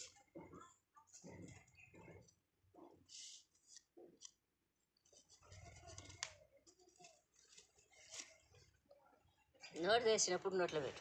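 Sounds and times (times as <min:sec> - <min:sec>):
paper envelope crinkling: 0:05.0 - 0:08.8.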